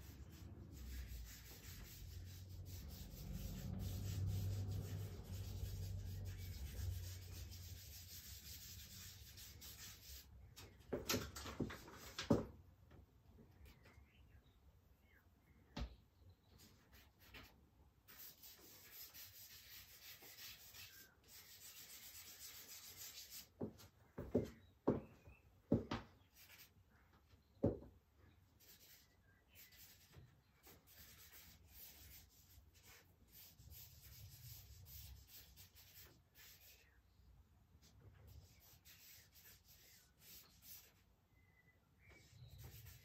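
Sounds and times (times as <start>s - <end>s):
charcoal scratching on paper: 0.0s - 10.3s, 18.1s - 23.6s, 28.6s - 36.9s, 38.3s - 41.1s, 42.0s - 43.0s.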